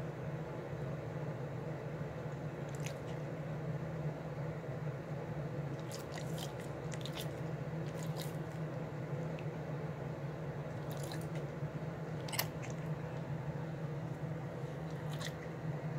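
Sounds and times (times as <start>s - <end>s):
steady low hum: 0.0s - 15.9s
dog licking and chewing: 5.8s - 8.6s.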